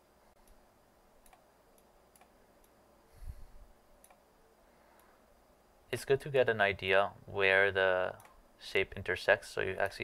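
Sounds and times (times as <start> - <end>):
computer mouse clicks: 1.2 - 2.8, 4.0 - 4.2, 8.2 - 8.4.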